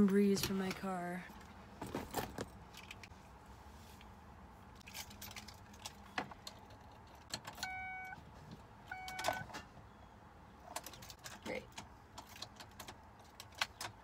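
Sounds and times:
car keys jangling in ignition: 4.8s - 8.2s, 10.7s - 14.0s
dashboard warning chimes: 7.5s - 8.2s, 8.9s - 9.5s.

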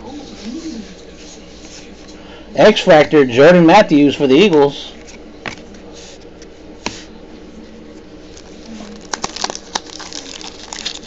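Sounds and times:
foil wrapper tearing and crinkling: 8.3s - 11.0s.

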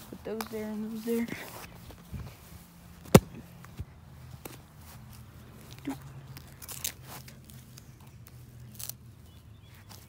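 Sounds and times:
paper crunching and crackling: 5.7s - 9.0s.

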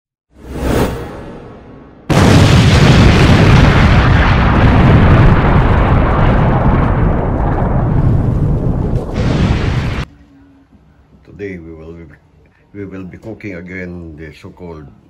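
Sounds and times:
explosion boom with rumble: 2.0s - 10.1s.

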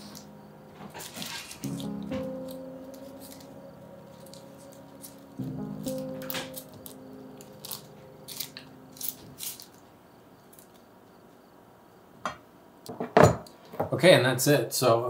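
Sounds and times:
background music chord: 0.0s - 10.1s.

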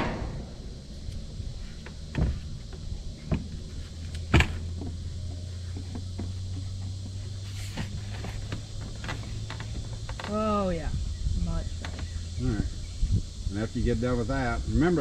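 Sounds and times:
steady low hum: 0.0s - 15.0s
knocks on wooden deck boards: 2.1s - 3.6s.

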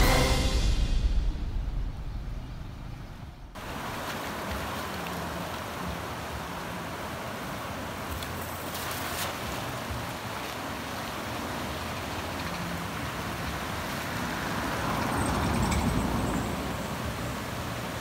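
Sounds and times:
low rumble: 0.0s - 3.6s
fast-flowing river rushing: 3.6s - 18.0s
cast net splash: 7.3s - 15.0s.

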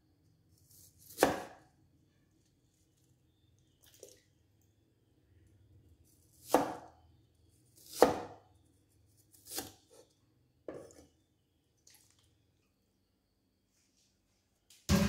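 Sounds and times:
cleaver chopping on wooden board: 7.9s - 8.4s.

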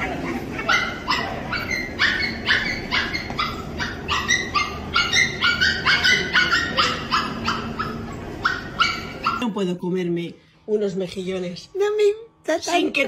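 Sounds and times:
puppy yipping: 0.0s - 9.4s.

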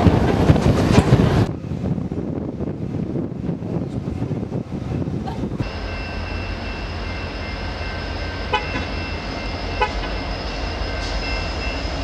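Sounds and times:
diesel locomotive rumbling: 0.0s - 12.0s
constant high tones: 5.6s - 12.0s.

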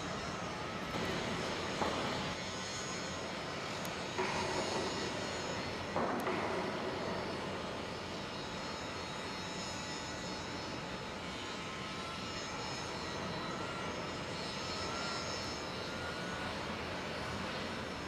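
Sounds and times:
faint high whine: 0.0s - 18.0s
shipyard machinery noise: 0.0s - 18.0s.

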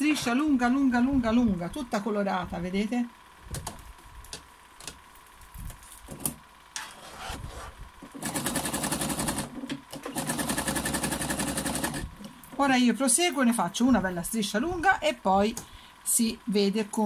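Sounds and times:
sewing machine stitching: 8.1s - 12.0s.

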